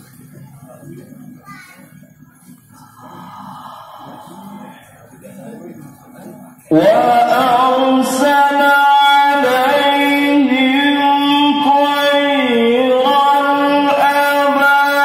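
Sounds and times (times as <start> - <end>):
man chanting melodic recitation: 4.3 - 15.0.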